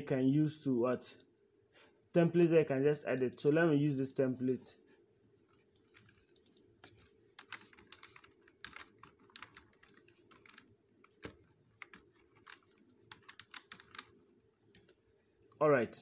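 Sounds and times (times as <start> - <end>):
typing on a computer keyboard: 5.7 - 14.9.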